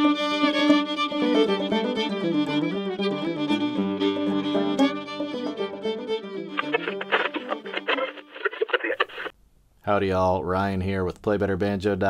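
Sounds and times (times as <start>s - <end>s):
fiddle melody: 0.0s - 8.7s.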